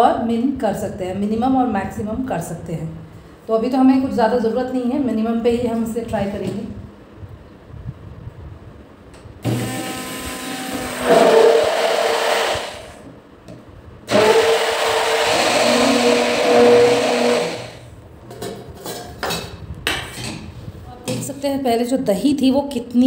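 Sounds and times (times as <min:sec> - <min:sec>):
hand blender running: 0:09.5 - 0:13.0, 0:14.1 - 0:17.8.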